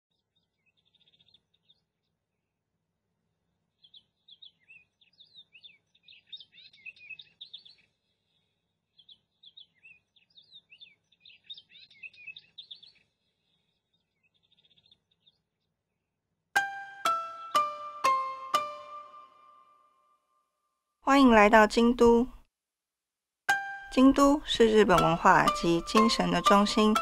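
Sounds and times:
songbird chirping and twittering: 0.1s - 2.6s, 3.6s - 19.8s, 23.5s - 27.0s
faint rapid bird trill: 3.8s - 15.8s.

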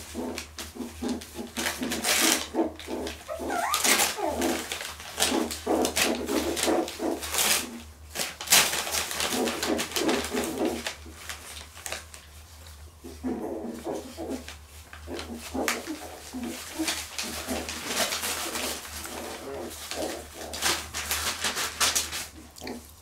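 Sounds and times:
paper crinkling and rustling: 0.4s - 12.4s, 14.4s - 22.8s
puppy whimpering and grunting: 1.8s - 7.2s, 13.0s - 20.6s.

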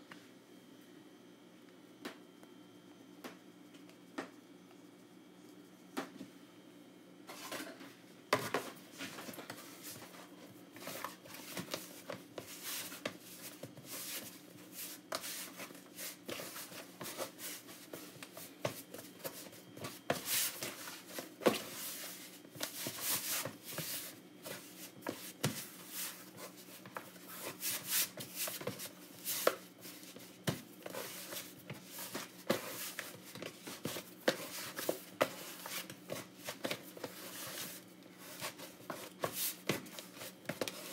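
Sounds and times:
hands kneading dough: 8.4s - 40.9s.

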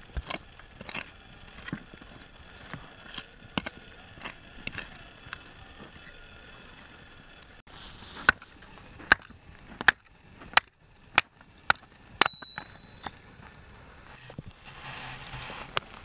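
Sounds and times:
hatchet chopping log: 8.2s - 13.1s
metallic ring: 12.2s - 13.2s.

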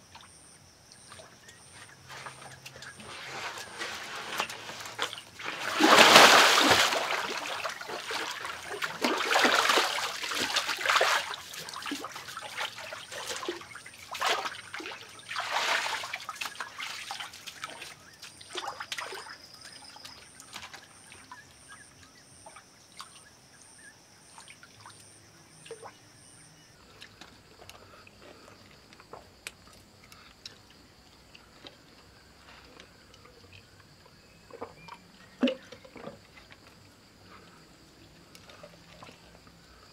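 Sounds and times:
water splashing from wading: 2.8s - 19.4s, 34.5s - 36.2s
water dripping and trickling: 4.2s - 23.3s.

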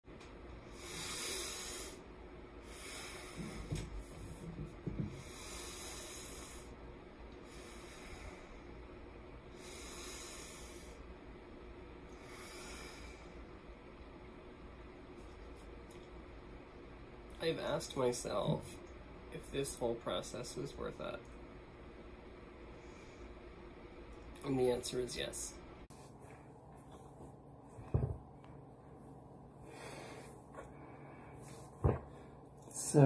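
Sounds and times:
person breathing through nose: 0.7s - 3.8s, 5.2s - 6.8s, 9.5s - 11.0s, 12.2s - 13.3s.

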